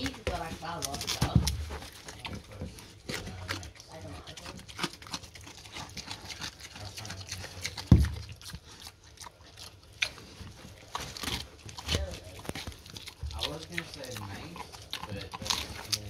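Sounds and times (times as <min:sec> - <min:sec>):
pig chewing pumpkin: 0:00.0 - 0:16.0
dull thump: 0:07.9 - 0:08.3.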